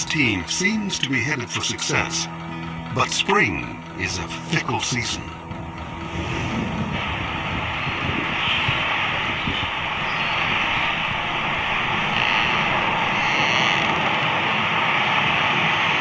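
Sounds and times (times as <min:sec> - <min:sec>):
strong storm wind rushing: 0:05.5 - 0:16.0.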